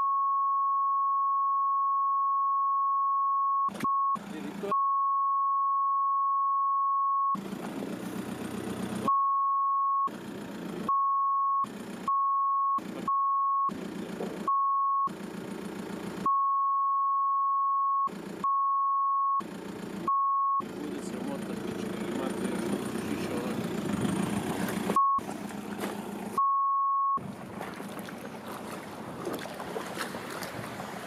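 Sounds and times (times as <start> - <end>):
high censor bleep tone: 0.0 - 7.4, 9.1 - 10.1, 10.9 - 13.8, 14.5 - 15.1, 16.3 - 19.4, 20.1 - 20.6, 25.0 - 25.2, 26.4 - 27.2
car engine idling: 4.2 - 4.7, 7.4 - 9.1, 10.1 - 10.9, 11.6 - 12.1, 12.8 - 13.1, 13.7 - 14.5, 15.1 - 16.3, 18.1 - 18.5, 19.4 - 26.4, 27.2 - 31.0.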